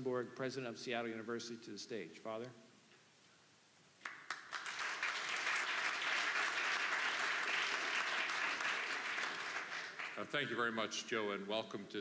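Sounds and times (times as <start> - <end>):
audience applauding: 4.0 - 10.3.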